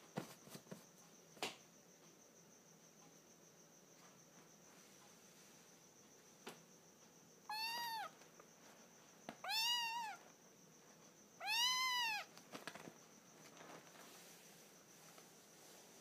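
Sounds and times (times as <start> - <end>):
kitten meowing: 7.5 - 8.1, 9.4 - 10.2, 11.4 - 12.3.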